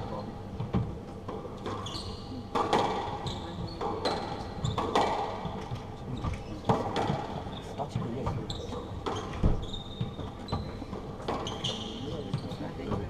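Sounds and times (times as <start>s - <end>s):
shoes squeaking on wooden floor: 1.2s - 2.5s, 5.5s - 13.0s
squash ball knocks: 2.5s - 3.2s, 3.8s - 7.4s.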